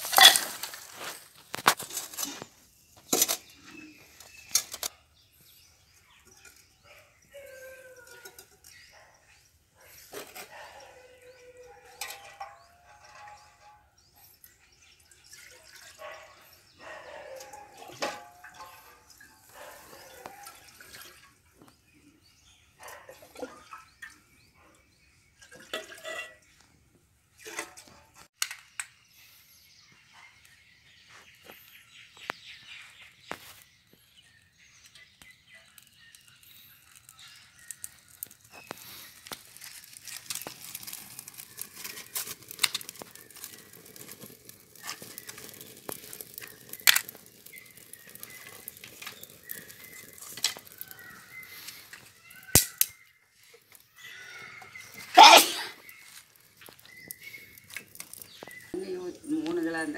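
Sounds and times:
kindling crackling and rustling: 0.0s - 5.0s, 31.3s - 59.9s
water pouring into metal pot: 11.0s - 16.7s, 17.4s - 21.4s, 36.7s - 52.8s.

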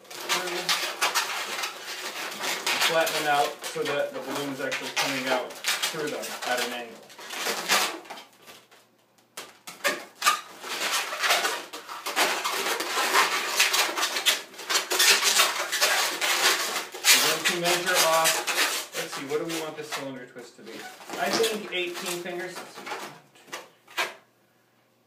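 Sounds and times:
balloons squeaking when twisted: 0.0s - 24.3s.

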